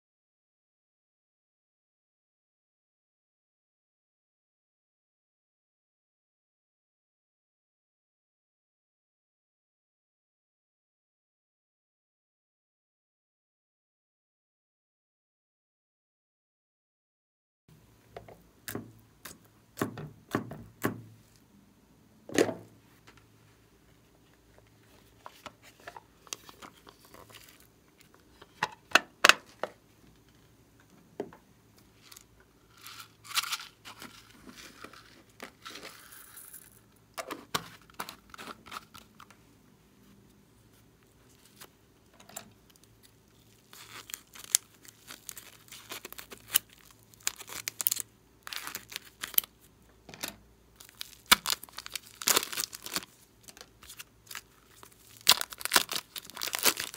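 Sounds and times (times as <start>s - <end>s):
plastic packaging crinkling: 24.9s - 28.1s, 32.0s - 39.2s, 42.7s - 49.6s, 50.8s - 56.9s
plastic container rustling open: 50.8s - 56.9s.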